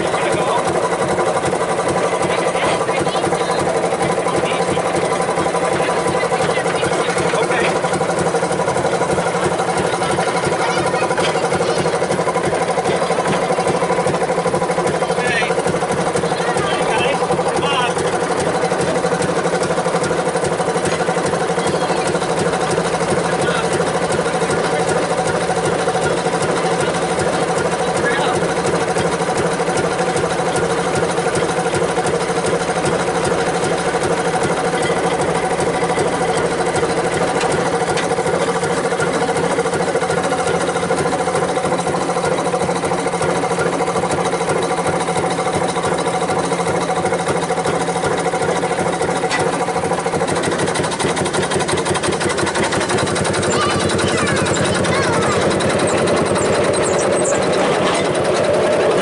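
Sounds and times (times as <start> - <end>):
rapid mechanical chatter: 0.0 - 59.0
small engine running: 0.0 - 59.0.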